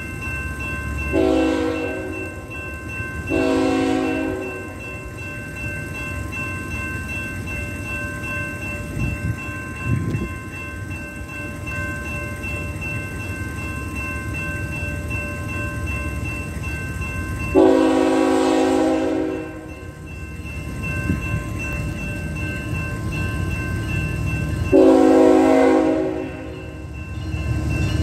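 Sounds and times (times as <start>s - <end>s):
crossing bell ringing: 0.0s - 28.0s
low rumble of train: 0.0s - 28.0s
train horn blasts: 1.2s - 2.1s, 3.3s - 4.6s, 17.6s - 19.7s, 24.7s - 26.8s.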